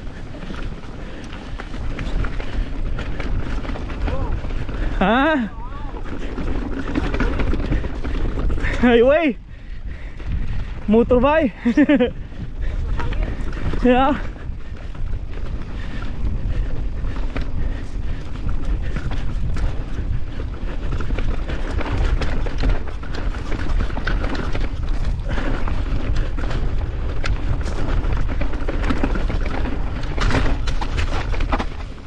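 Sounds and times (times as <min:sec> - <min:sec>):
bike clattering over rough ground: 0:00.0 - 0:32.0
wind rumble on microphone: 0:00.0 - 0:32.0.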